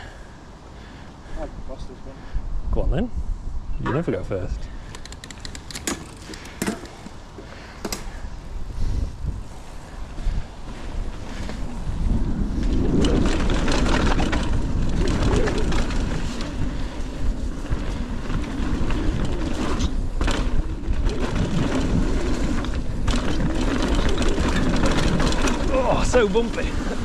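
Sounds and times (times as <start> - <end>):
wind buffeting microphone: 0.0 - 27.0
bike knocking and clattering: 4.8 - 8.2, 12.6 - 16.9, 18.0 - 27.0
tyres rumbling on dirt: 11.3 - 27.0.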